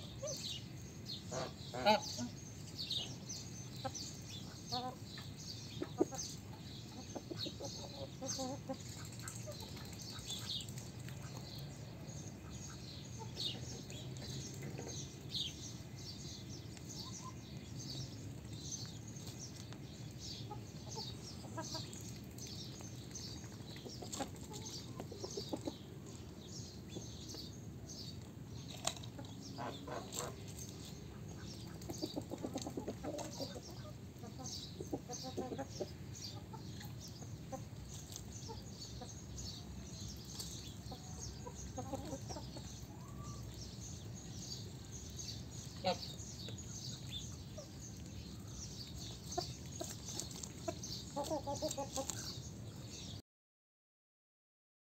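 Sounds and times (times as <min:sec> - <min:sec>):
hens clucking: 0:03.8 - 0:11.4, 0:23.4 - 0:26.2, 0:28.8 - 0:39.1, 0:40.3 - 0:43.3, 0:49.2 - 0:52.3.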